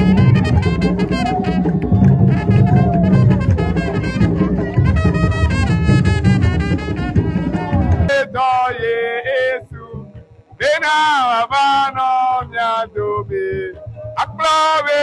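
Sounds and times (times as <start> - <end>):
brass band playing: 0.0 - 8.1.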